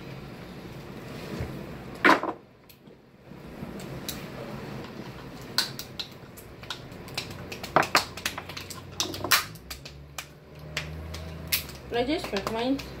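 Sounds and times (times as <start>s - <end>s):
crab shells cracking: 4.9s - 13.0s.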